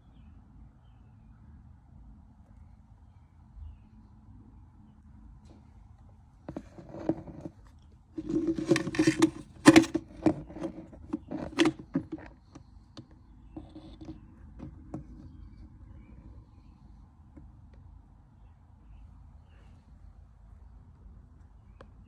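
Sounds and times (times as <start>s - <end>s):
tools and metal fittings handled: 6.5s - 7.5s, 8.2s - 15.2s.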